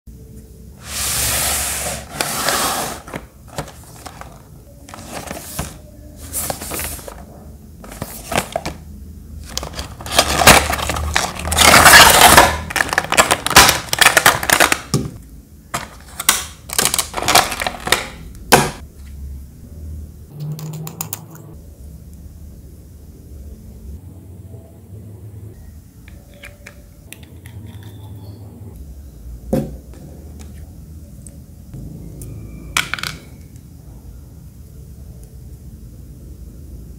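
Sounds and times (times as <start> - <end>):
cardboard and plastic rustling: 0.9 - 8.8, 9.4 - 18.7.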